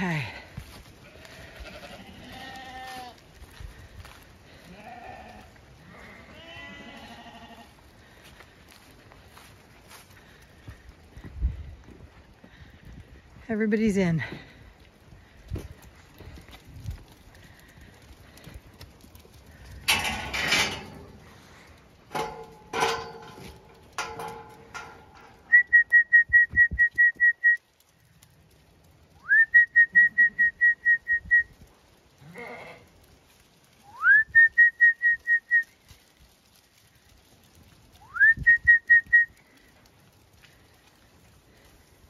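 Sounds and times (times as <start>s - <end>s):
sheep bleating: 1.0s - 3.2s, 4.5s - 7.8s, 32.2s - 32.9s
trilled whistling: 25.5s - 27.6s, 29.2s - 31.5s.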